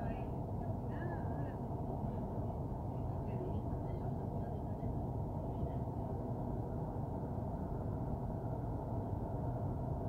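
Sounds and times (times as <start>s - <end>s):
train low rumble from inside: 0.0s - 10.0s.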